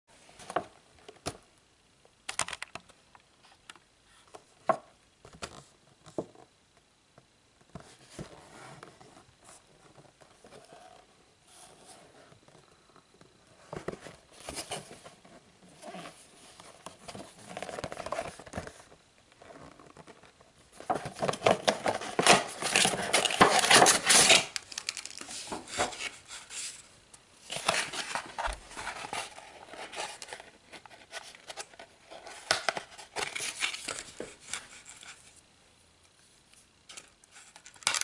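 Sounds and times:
cardboard box rustling: 0:07.8 - 0:24.6, 0:27.5 - 0:35.2.

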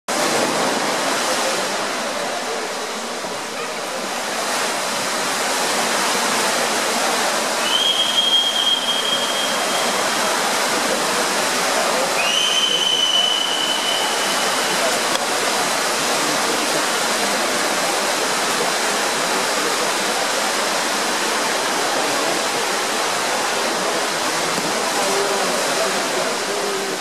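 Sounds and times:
echoing crowd noise: 0:00.1 - 0:27.0
swimmers splashing in pool: 0:00.1 - 0:27.0
long high whistle: 0:07.6 - 0:10.2, 0:12.1 - 0:15.1.

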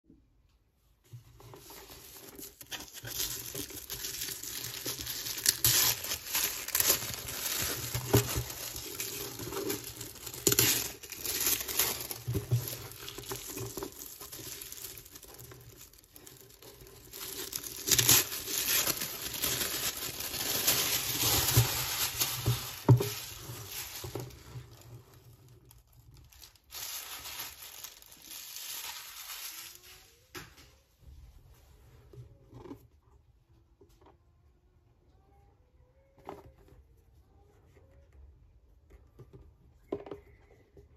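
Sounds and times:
paper crackling and rustling: 0:01.2 - 0:30.4
paper ripping: 0:02.3 - 0:15.4, 0:16.2 - 0:24.4.

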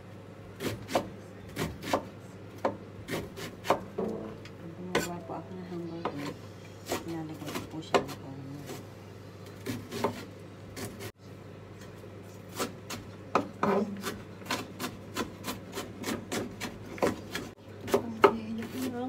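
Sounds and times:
knife chopping on wooden board: 0:00.6 - 0:04.2, 0:06.9 - 0:08.8, 0:09.6 - 0:11.1, 0:12.5 - 0:19.0.

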